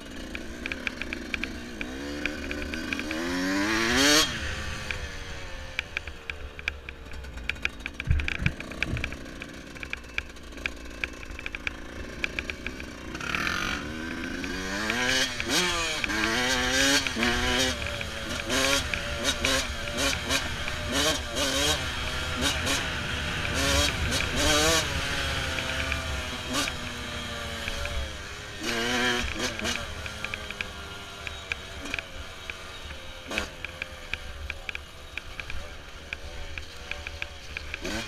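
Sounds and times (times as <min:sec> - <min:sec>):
dirt bike engine revving: 0:00.0 - 0:38.0
stones and chassis rattling: 0:05.8 - 0:21.0.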